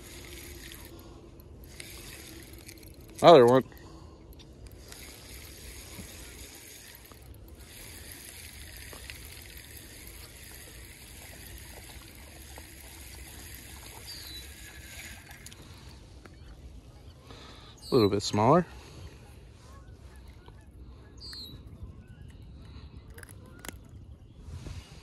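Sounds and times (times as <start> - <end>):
fishing reel ticking: 0.0 - 15.8
water trickling: 4.7 - 16.0
wind rumble on microphone: 21.5 - 25.0.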